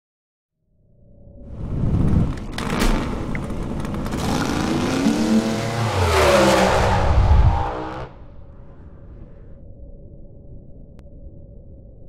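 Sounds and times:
race car engine revving: 0:02.6 - 0:08.2.

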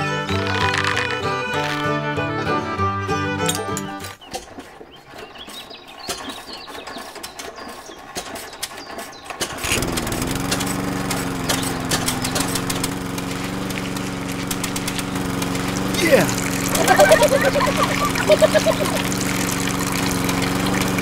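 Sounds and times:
model engine running: 0:09.4 - 0:21.0.

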